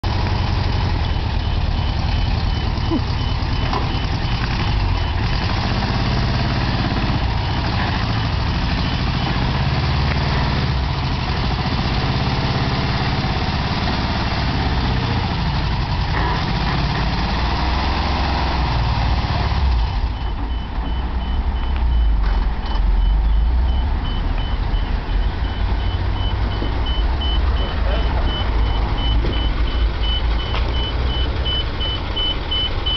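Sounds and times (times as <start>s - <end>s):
truck engine running: 0.0s - 32.9s
high warning beeper: 20.2s - 32.9s.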